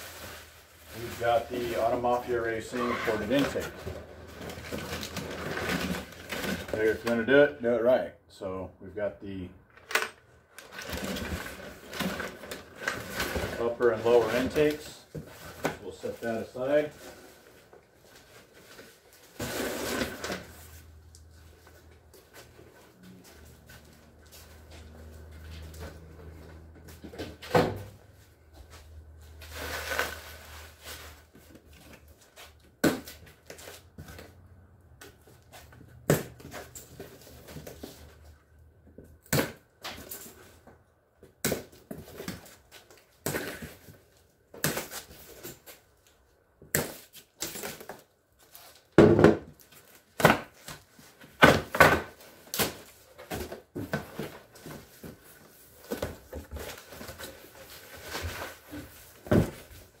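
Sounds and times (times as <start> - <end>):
bubble wrap crinkling: 0.0 - 3.5, 29.3 - 31.4.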